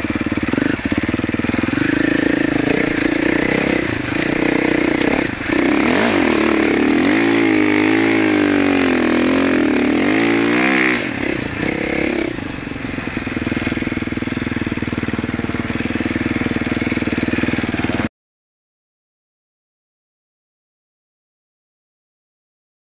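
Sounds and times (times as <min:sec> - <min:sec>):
dirt bike engine revving: 0:00.0 - 0:18.1.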